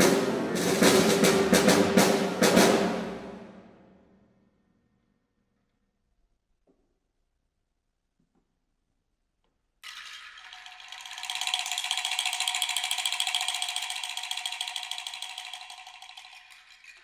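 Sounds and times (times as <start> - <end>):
percussion rattle shaken: 9.8 - 17.0.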